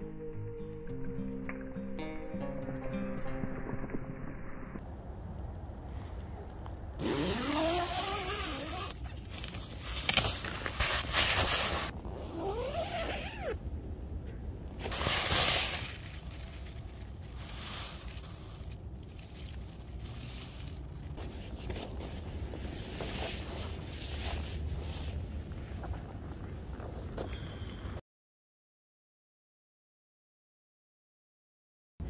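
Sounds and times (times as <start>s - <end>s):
tent fabric rustling and scraping: 7.0s - 13.6s, 14.8s - 26.2s
tent zipper being pulled: 7.0s - 13.6s, 14.8s - 18.8s.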